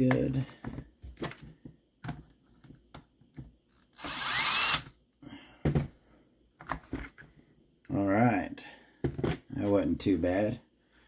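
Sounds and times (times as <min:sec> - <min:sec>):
cordless drill motor whine: 0:03.8 - 0:04.9.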